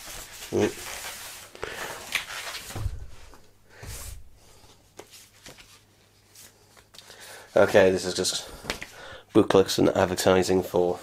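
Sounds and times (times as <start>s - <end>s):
bubble wrap crinkling: 0.0s - 3.4s
cardboard rustling: 0.0s - 4.3s.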